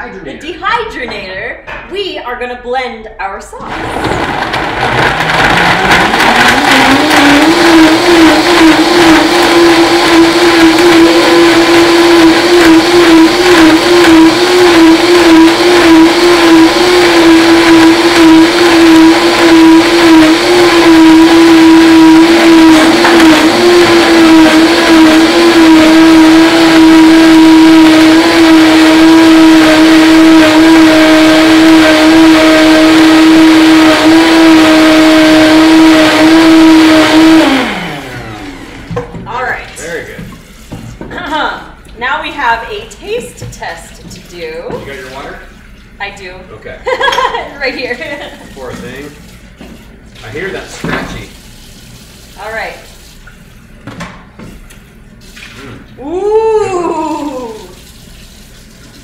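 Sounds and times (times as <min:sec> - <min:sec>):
blender motor running: 0:03.6 - 0:40.1, 0:56.0 - 0:57.8.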